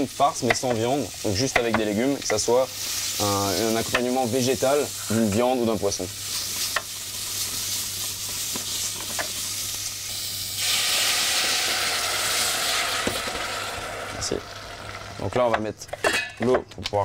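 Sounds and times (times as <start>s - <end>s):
steam hissing off hot pan: 0.0s - 15.5s
vegetables sizzling in oil: 0.0s - 15.7s
water pouring into pan: 10.1s - 15.3s.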